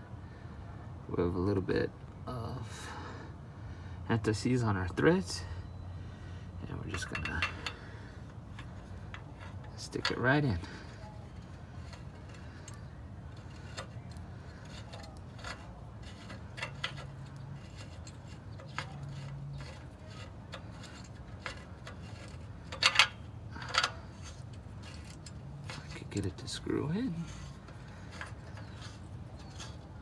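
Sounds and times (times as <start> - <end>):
metallic clicks of threading sensor: 11.3 - 26.0.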